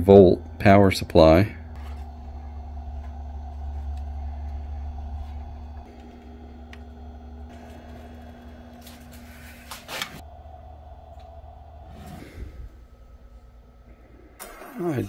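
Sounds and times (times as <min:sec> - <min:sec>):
charger cooling fan whirring: 0:00.0 - 0:15.0.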